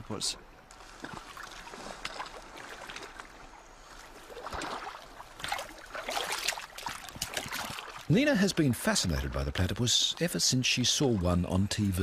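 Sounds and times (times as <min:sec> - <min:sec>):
water splashing and lapping: 0:00.4 - 0:09.4.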